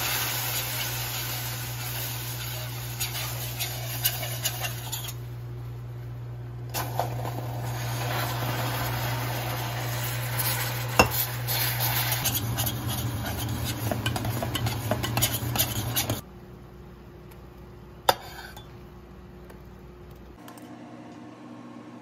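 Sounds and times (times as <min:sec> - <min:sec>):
caramel hissing and spitting: 0:00.0 - 0:05.2, 0:06.8 - 0:16.2
steady low hum: 0:01.0 - 0:22.0
metal spoon scraping a pan: 0:02.3 - 0:05.3, 0:10.0 - 0:16.2, 0:18.1 - 0:18.7.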